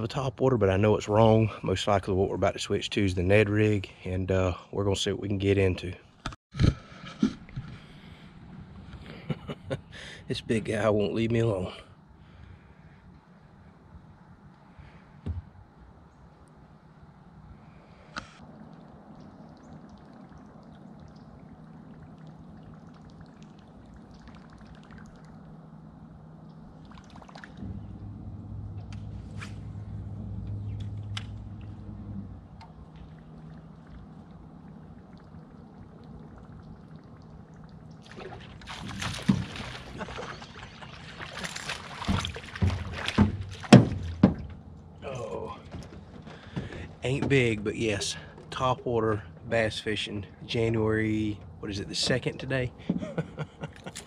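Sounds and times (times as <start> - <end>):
fish splashing at the surface: 26.8 - 27.6, 35.1 - 44.2.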